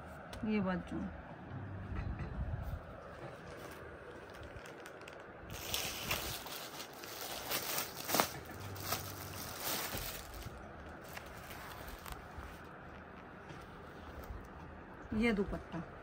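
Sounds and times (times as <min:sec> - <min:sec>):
plastic packaging crinkling: 0:03.4 - 0:12.7.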